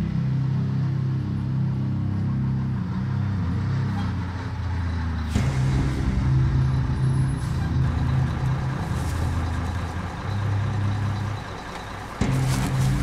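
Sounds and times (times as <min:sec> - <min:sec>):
fire engine idling: 0:04.3 - 0:13.0.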